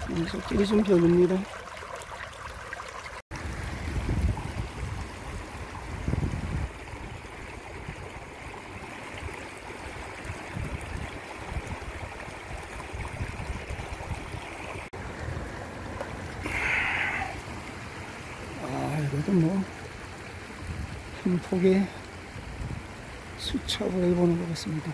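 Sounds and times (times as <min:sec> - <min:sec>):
stream rushing over rocks: 0:00.0 - 0:24.9
wind gusts on microphone: 0:03.4 - 0:08.5, 0:10.1 - 0:15.5, 0:20.6 - 0:21.1, 0:22.3 - 0:23.1.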